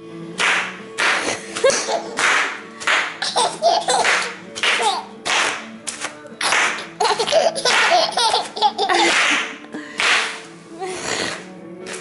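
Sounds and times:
toddler laughing: 1.6 - 2.2, 3.2 - 5.1, 7.0 - 9.5.

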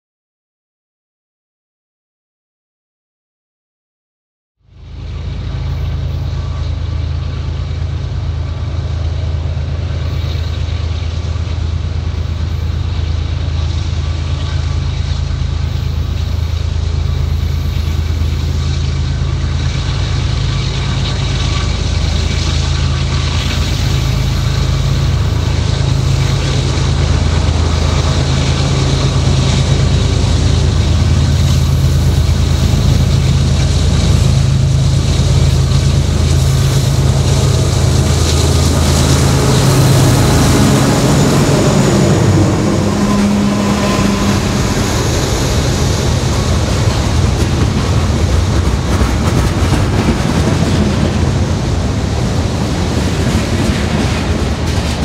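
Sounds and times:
diesel locomotive engines droning: 4.6 - 55.0.

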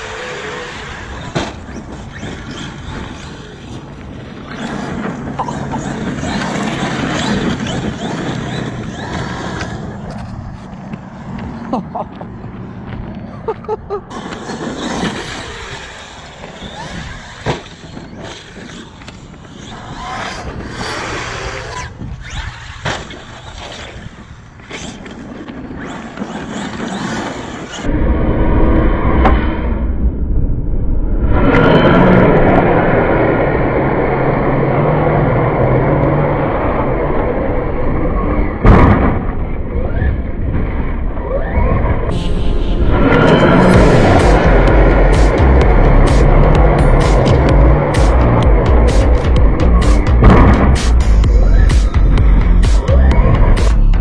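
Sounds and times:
tyres churning gravel: 14.1 - 21.6
deep steady rumble: 41.9 - 54.0.

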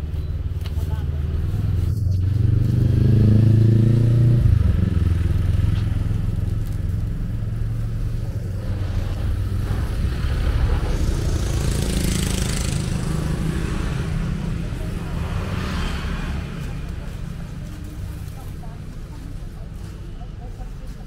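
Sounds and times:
vehicle engine accelerating: 0.0 - 20.0.

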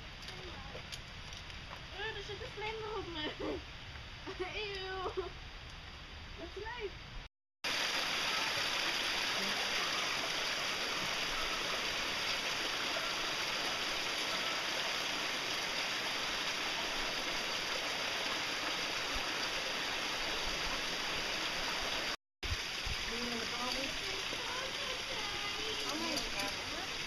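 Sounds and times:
stream rushing: 7.6 - 27.0.

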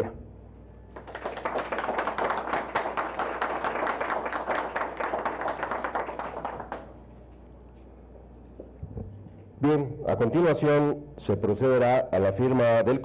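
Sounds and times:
audience applauding: 0.9 - 7.0.

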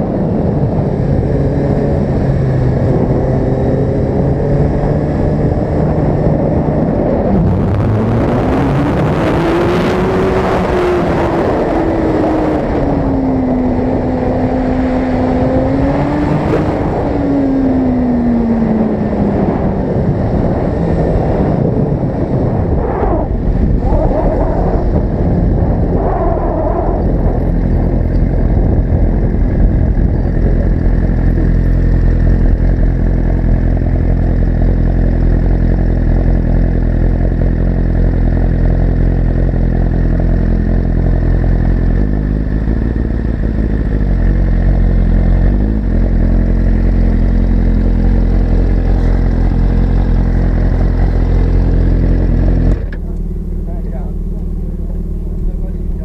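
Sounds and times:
wind on microphone: 0.0 - 33.0
motorcycle engine revving: 0.0 - 56.0
motorcycle engine idling: 27.2 - 56.0.

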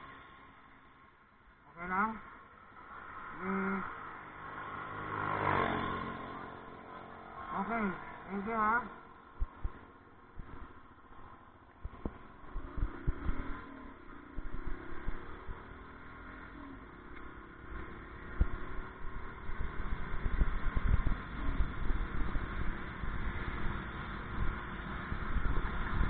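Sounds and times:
road rumble: 0.0 - 26.0
vehicle engine running: 1.7 - 26.0
wind buffeting microphone: 9.3 - 16.1, 18.2 - 26.0.

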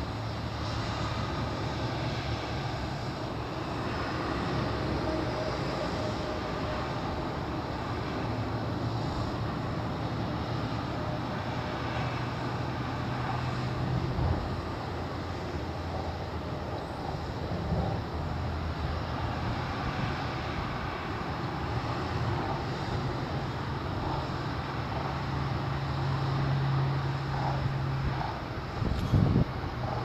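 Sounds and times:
low engine hum: 0.0 - 30.0
outdoor background noise: 0.0 - 30.0.

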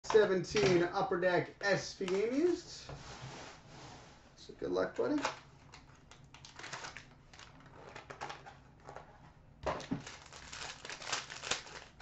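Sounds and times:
plastic wrapper crinkling and tearing: 5.2 - 8.4, 9.8 - 12.0.

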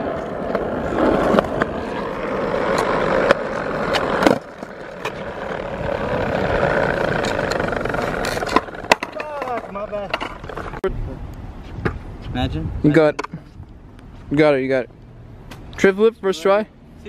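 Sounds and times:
skateboard snap and clatter: 0.0 - 10.8
skateboard wheels rolling: 0.0 - 10.9.

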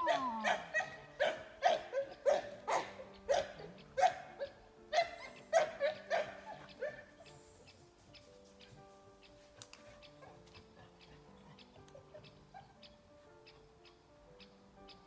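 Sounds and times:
puppy barking: 0.0 - 7.2
faint background music: 0.0 - 15.0.

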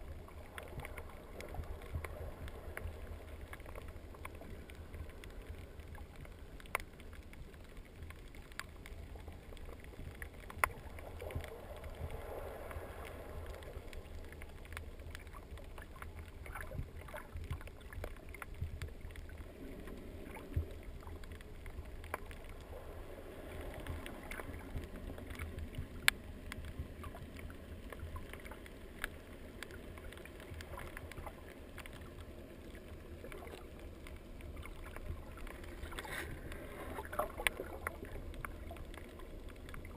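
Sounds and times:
dull low underwater rumble: 0.0 - 39.9
sharp clicks and crackles: 0.0 - 39.9.

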